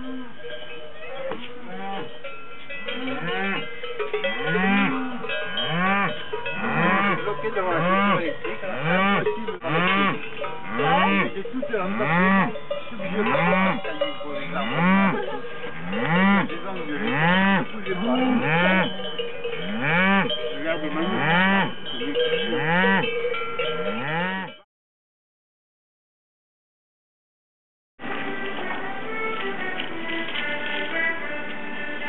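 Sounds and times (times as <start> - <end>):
cowbells ringing: 0.0 - 24.6
cattle mooing: 1.4 - 2.2, 2.9 - 3.7, 4.3 - 13.9, 14.5 - 19.0, 19.6 - 20.4, 21.0 - 21.8, 22.6 - 23.1, 23.8 - 24.6.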